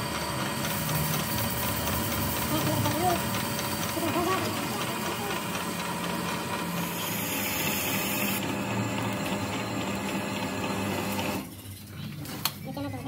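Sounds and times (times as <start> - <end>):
metal lathe drilling into metal: 0.0 - 11.5.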